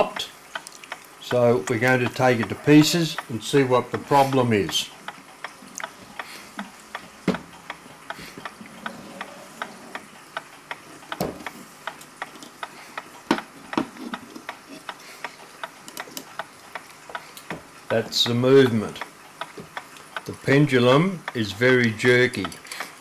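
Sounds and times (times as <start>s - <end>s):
wall clock ticking: 0.0s - 23.0s
knocks on wooden case: 7.2s - 7.5s.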